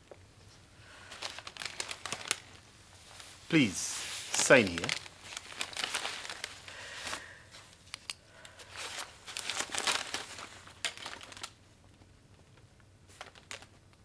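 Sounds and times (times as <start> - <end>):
paper pages rustling: 1.0 - 8.0, 8.6 - 11.6, 13.1 - 13.8
cellophane wrapping crinkling: 1.0 - 14.0.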